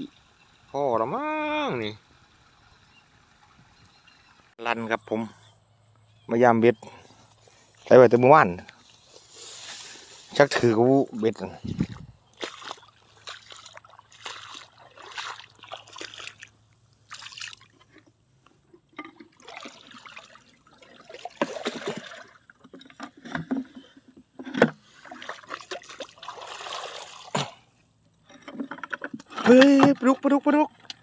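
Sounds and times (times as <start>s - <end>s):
water sloshing and trickling: 7.1s - 31.0s.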